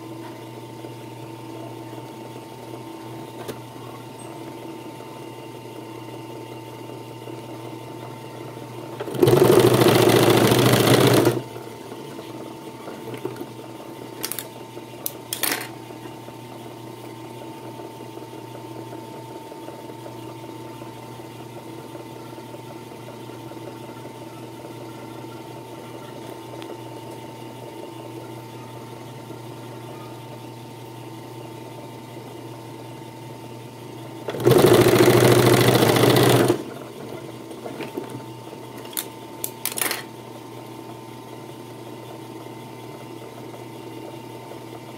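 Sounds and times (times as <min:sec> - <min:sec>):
sewing machine motor humming: 0:08.9 - 0:11.5, 0:34.2 - 0:37.7
sewing machine sewing: 0:08.9 - 0:11.5, 0:34.2 - 0:37.9.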